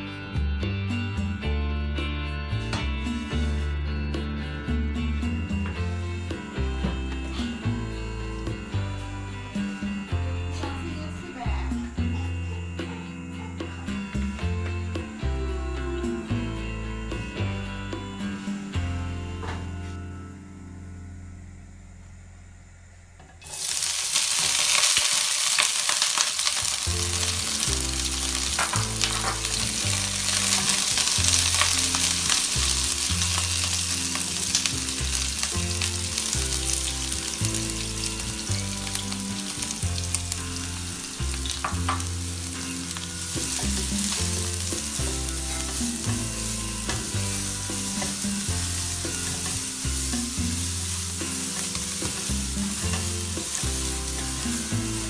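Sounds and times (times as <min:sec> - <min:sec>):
hot oil sizzling in a wok: 0:05.5 - 0:11.7, 0:23.4 - 0:55.0.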